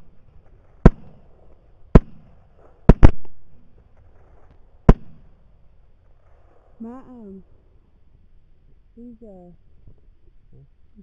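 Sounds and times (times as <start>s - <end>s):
suppressed rifle shots: 1.9s - 3.5s.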